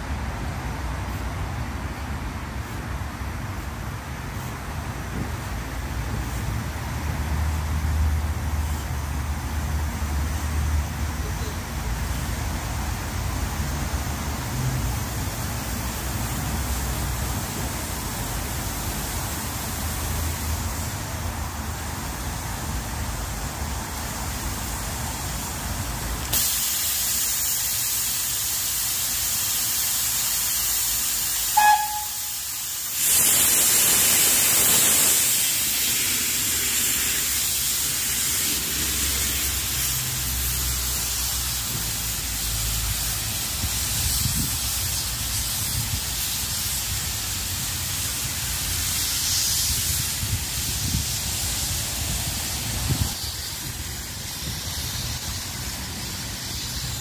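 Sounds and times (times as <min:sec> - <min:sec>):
steam locomotive hissing steam: 0:00.0 - 0:57.0
high steam whistle toot: 0:31.4 - 0:32.9.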